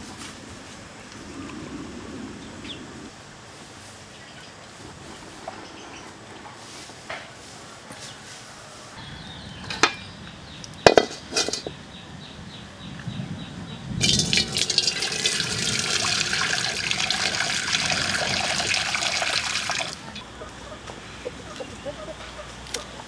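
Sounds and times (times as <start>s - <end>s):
water pouring into metal wok: 14.0s - 20.0s.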